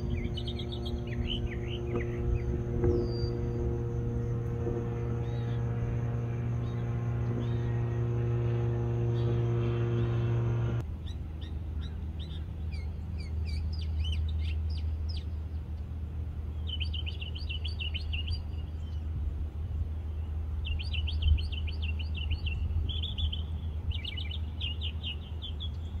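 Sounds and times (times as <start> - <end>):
low bump: 0.0 - 10.8
steady low rumble: 0.0 - 11.8
small birds chirping: 0.0 - 15.4.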